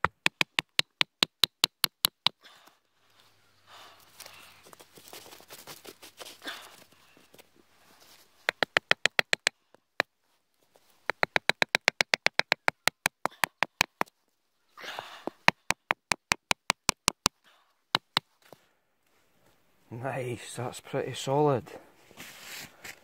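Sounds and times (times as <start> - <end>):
wood tapping a peg into a log: 0.0 - 2.4, 8.5 - 10.1, 11.0 - 14.1, 15.2 - 17.4, 18.0 - 18.3
handling rustle: 4.0 - 8.5.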